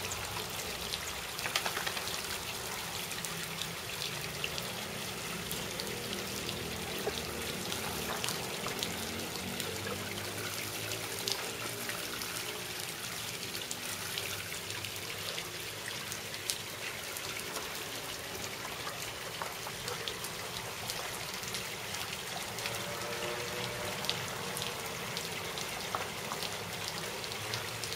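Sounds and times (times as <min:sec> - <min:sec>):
sprinkler water hissing: 0:00.0 - 0:03.0
water drops ticking on asphalt: 0:00.0 - 0:27.9.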